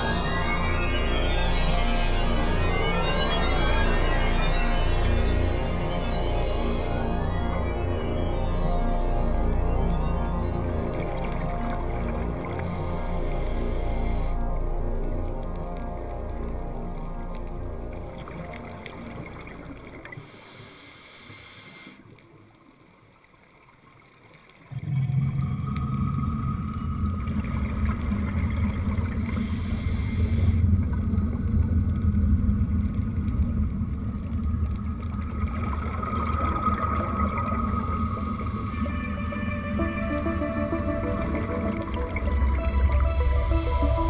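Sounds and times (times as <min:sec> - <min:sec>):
background music: 0:00.0 - 0:19.8, 0:35.4 - 0:44.0
muffled underwater rumble: 0:24.7 - 0:44.0.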